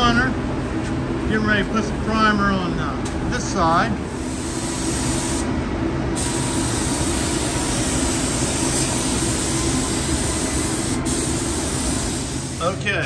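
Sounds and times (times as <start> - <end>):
spray gun hissing: 4.2 - 5.5, 6.2 - 12.8.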